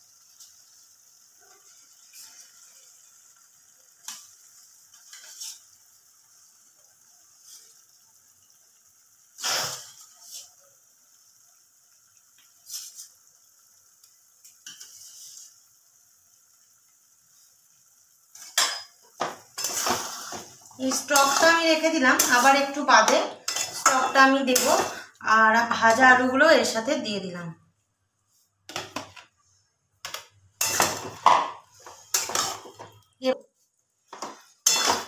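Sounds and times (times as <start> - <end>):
faint sizzle of frying: 0.0 - 35.0
spatula scraping metal pan: 5.0 - 5.6, 19.6 - 25.0, 30.6 - 32.9, 34.2 - 35.0.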